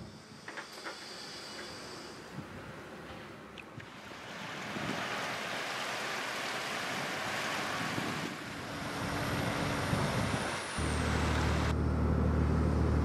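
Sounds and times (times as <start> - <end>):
water churning in propeller wash: 3.8 - 10.4
low diesel engine drone: 3.9 - 13.0.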